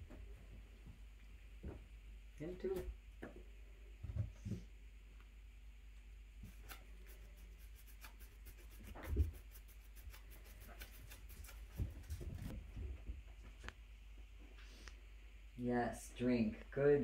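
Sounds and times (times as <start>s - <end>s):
kittens ticking and rubbing at bowl: 6.4s - 12.5s.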